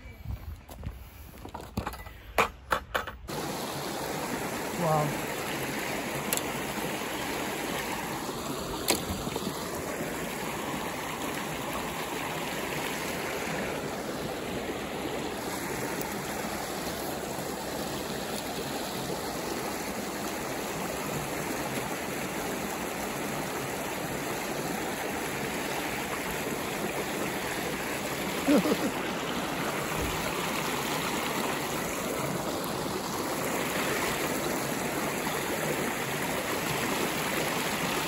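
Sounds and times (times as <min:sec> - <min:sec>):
creek water rushing over rocks: 0:03.3 - 0:38.0.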